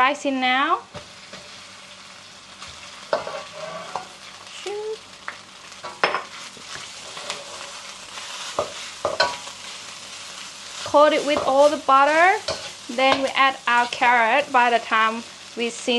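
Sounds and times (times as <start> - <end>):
rice sizzling in a wok: 0.0 - 15.9
spatula scraping a wok: 2.6 - 4.3, 6.0 - 14.0.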